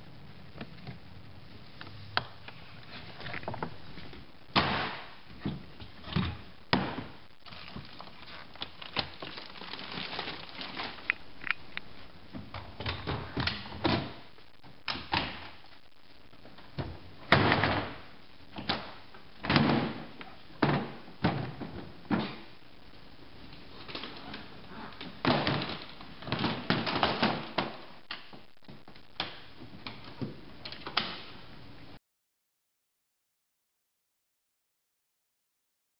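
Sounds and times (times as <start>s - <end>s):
plastic box walls folding: 5.4s - 11.2s, 16.7s - 22.5s, 23.8s - 28.0s.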